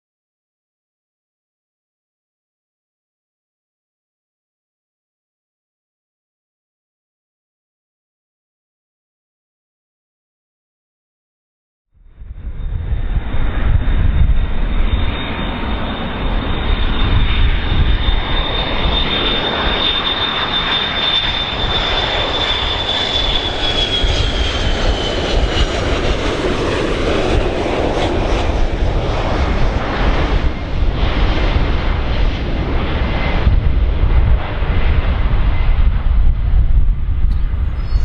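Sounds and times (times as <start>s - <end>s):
airplane engines rumbling: 12.0s - 38.0s
engine whine sliding down: 37.0s - 38.0s.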